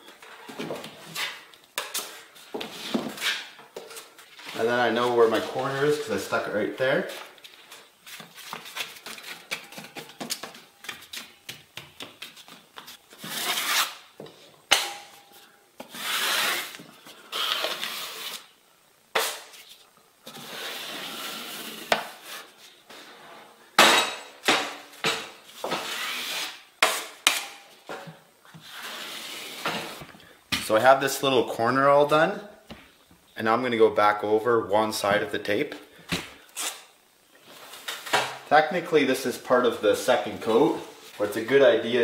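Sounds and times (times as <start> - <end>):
drywall knife scraping compound: 13.1 - 14.0, 15.8 - 18.5, 20.3 - 22.6, 25.6 - 27.4, 28.6 - 30.0.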